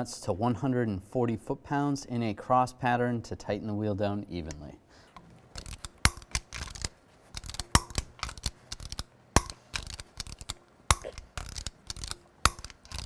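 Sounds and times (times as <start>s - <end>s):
loud torque wrench clicks: 5.6s - 13.0s
torque wrench ratcheting: 5.6s - 13.0s.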